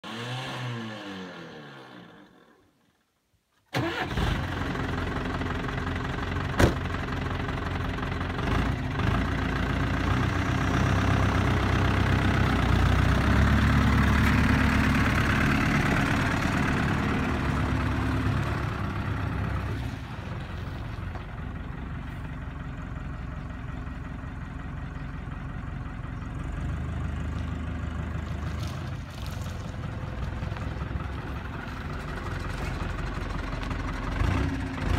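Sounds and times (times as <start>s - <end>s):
diesel lorry driving past: 3.8s - 34.9s.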